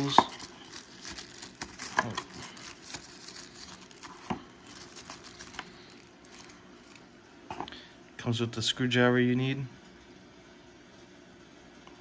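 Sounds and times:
wrapping crinkling and rustling: 0:00.0 - 0:07.2.

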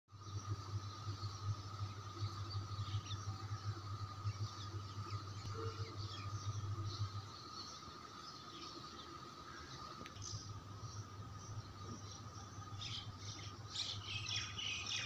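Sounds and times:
low steady hum: 0:00.1 - 0:15.0
small birds chirping: 0:00.1 - 0:15.0.

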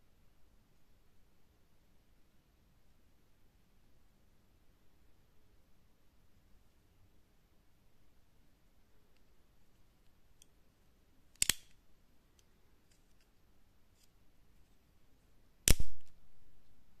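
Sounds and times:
knife blade clicking shut: 0:11.4 - 0:11.7
spring knife snapping open: 0:11.4 - 0:11.7.

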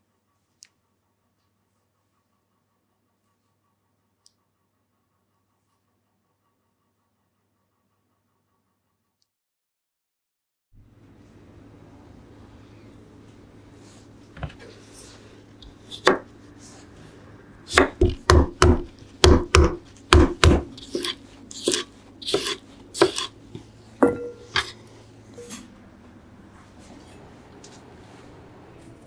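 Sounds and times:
pestle thudding on cutting board: 0:15.9 - 0:16.3, 0:17.7 - 0:23.3, 0:24.0 - 0:24.7.

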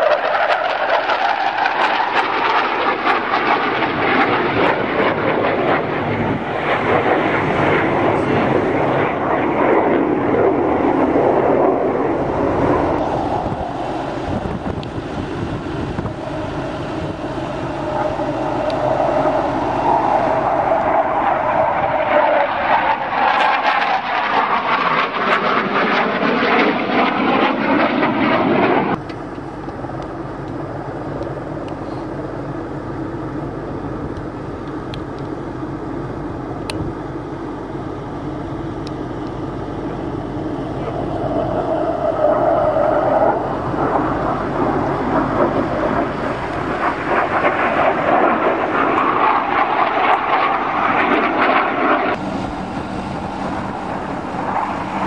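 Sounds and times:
military jet flying past: 0:00.0 - 0:55.0.

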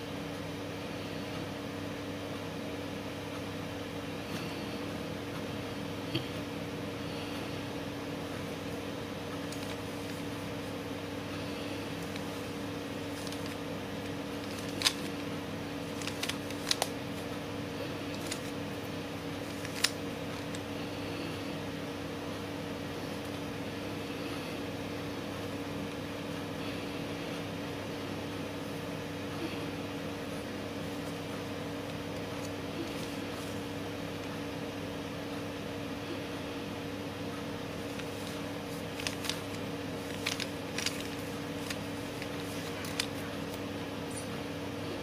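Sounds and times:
steady background hum: 0:00.0 - 0:45.0
puzzle cube plastic clicks: 0:13.1 - 0:15.2, 0:15.9 - 0:17.0.

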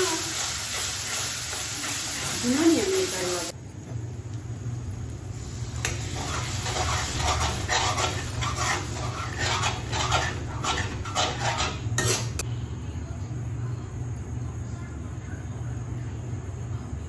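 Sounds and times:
liquid sizzling in hot oil: 0:00.0 - 0:03.6, 0:05.1 - 0:12.4
steady low hum: 0:03.5 - 0:17.0
ladle scraping pan: 0:05.8 - 0:12.4.

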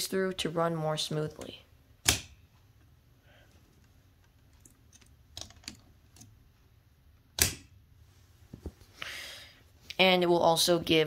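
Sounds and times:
plastic parts clicking: 0:03.8 - 0:06.3.

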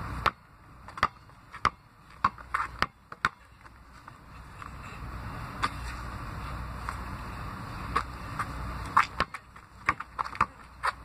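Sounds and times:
basketball bouncing on asphalt: 0:00.0 - 0:04.8, 0:05.5 - 0:06.1, 0:07.8 - 0:11.0.

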